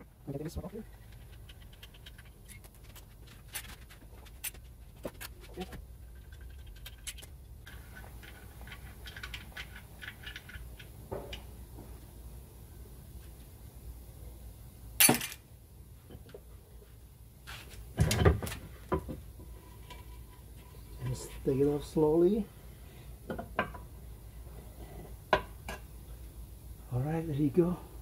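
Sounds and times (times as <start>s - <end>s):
tools clicking and scraping: 0.8s - 11.5s.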